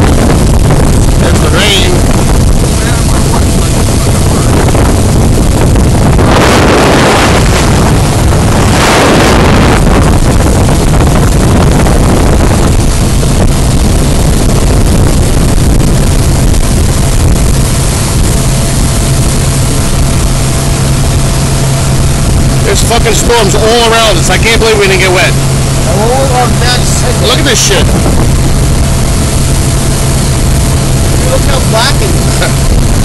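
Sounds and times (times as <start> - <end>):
motorboat engine humming: 0.0 - 33.0
wind rushing across microphone: 0.0 - 33.0.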